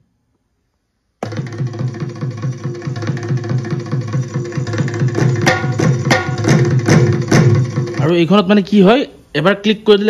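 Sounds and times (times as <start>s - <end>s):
fast drum beat: 1.2s - 8.5s.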